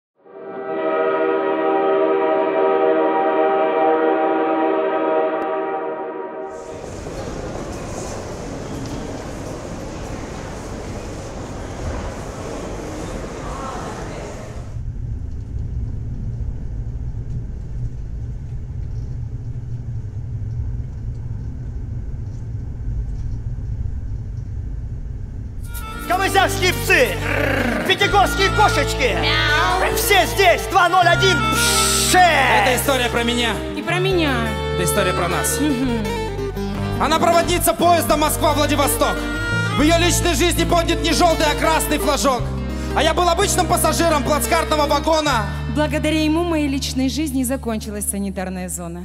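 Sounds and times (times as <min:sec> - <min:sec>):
train horn chord: 0:00.2 - 0:07.0, 0:25.6 - 0:27.2, 0:27.9 - 0:46.2
train rumbling inside carriage: 0:06.5 - 0:25.7.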